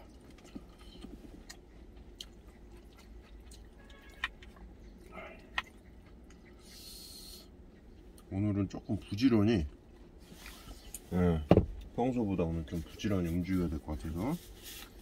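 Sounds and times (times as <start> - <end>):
person chewing: 0.0 - 8.3.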